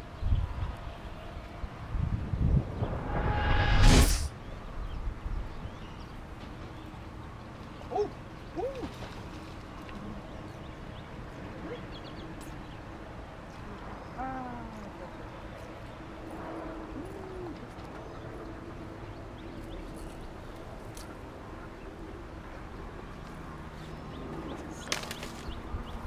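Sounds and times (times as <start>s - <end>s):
wind rumble on microphone: 0.0s - 6.3s.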